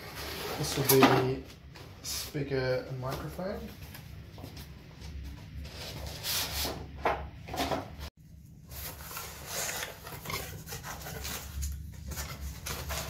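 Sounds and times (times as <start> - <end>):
cardboard scraping and rustling: 0.0 - 1.4, 8.6 - 13.0.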